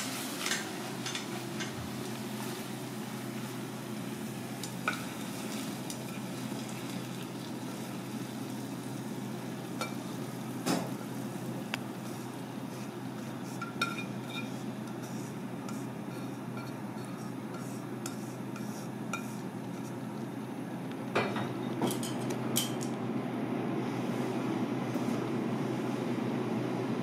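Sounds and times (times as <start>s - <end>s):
steady low hum: 0.0s - 27.0s
chopsticks clinking on pan and bowl: 0.4s - 1.8s, 13.5s - 15.1s.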